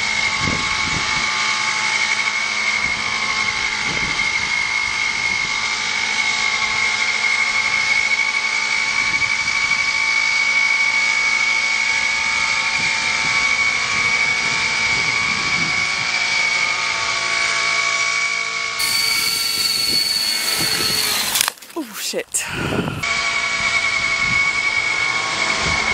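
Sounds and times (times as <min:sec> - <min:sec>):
rc helicopter engine whine: 0:00.0 - 0:21.7, 0:22.5 - 0:25.9
second higher whine: 0:18.8 - 0:21.6.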